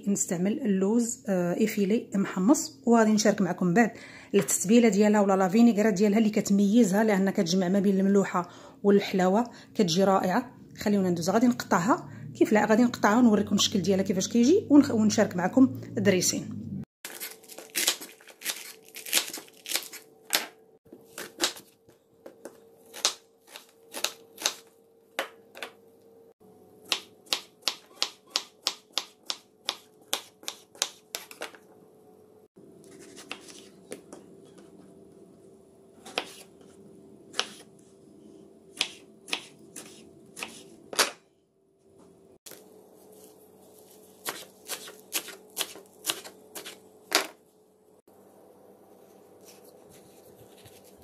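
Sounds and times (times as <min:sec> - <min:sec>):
knife chopping on wooden board: 0:26.9 - 0:31.5, 0:36.1 - 0:36.5, 0:37.3 - 0:37.7, 0:38.8 - 0:41.2, 0:44.2 - 0:46.8
faint steady hum: 0:28.7 - 0:51.0.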